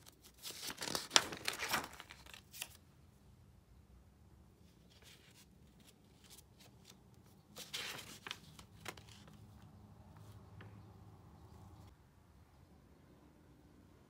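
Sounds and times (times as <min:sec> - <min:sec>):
paper pages rustling: 0:00.0 - 0:02.8, 0:04.9 - 0:10.4.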